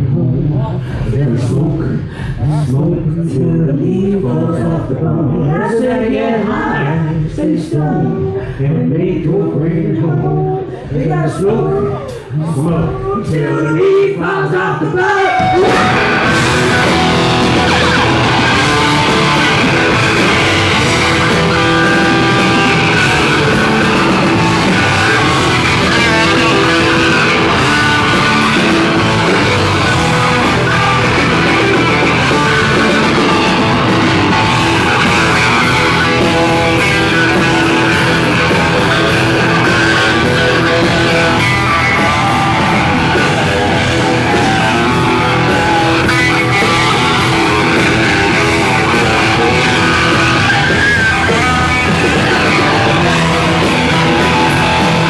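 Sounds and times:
bass guitar: 0:00.0 - 0:55.0
distorted electric guitars: 0:00.0 - 0:55.0
drums: 0:00.0 - 0:55.0.

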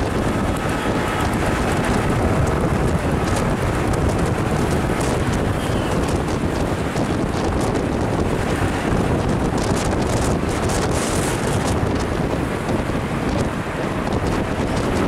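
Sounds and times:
road and traffic rumble: 0:00.0 - 0:15.0
wind buffeting microphone: 0:00.0 - 0:15.0.

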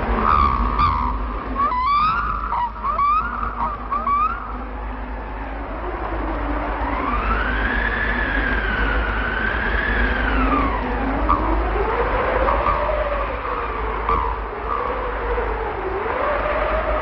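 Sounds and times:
wavering siren tone: 0:00.0 - 0:17.0.

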